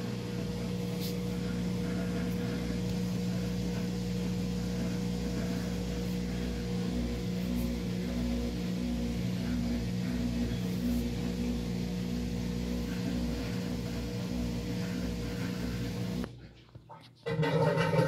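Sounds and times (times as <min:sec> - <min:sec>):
washing machine motor humming: 0:00.0 - 0:16.6, 0:17.2 - 0:18.0.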